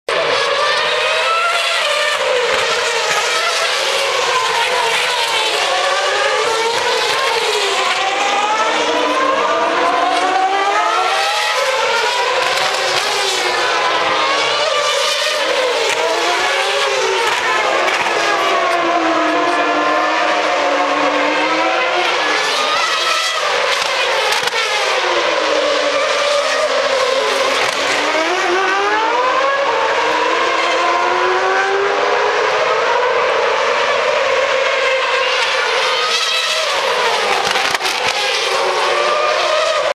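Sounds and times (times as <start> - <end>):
racing car engines at high revs: 0.1 - 39.9.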